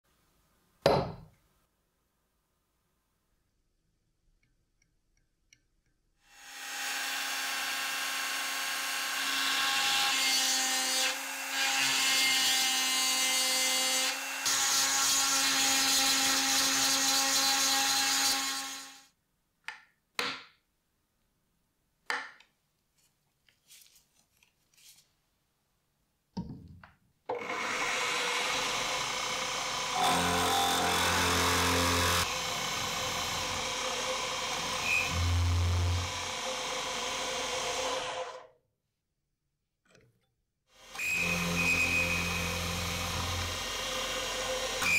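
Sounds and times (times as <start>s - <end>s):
cutter boring into wood: 6.3s - 19.0s, 27.3s - 38.5s, 40.8s - 44.9s
rotary tool grinding metal: 27.4s - 38.4s.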